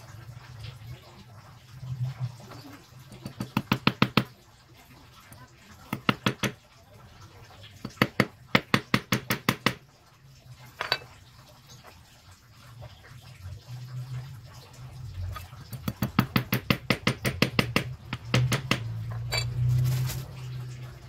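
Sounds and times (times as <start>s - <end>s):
hammer tapping on lead sinker: 15.9s - 18.9s.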